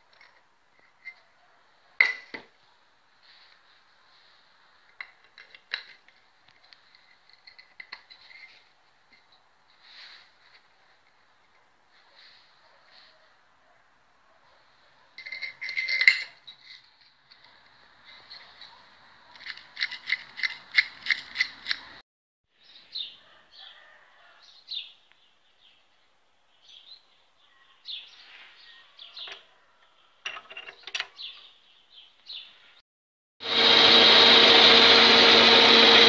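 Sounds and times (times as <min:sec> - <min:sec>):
light metal clicks and scrapes: 0:04.9 - 0:09.4, 0:15.2 - 0:22.0
steel parts clattering: 0:15.2 - 0:16.9.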